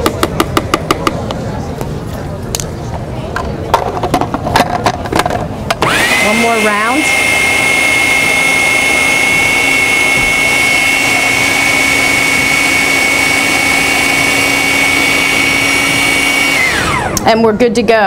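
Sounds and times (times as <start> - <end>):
food processor motor whine: 5.8 - 17.3.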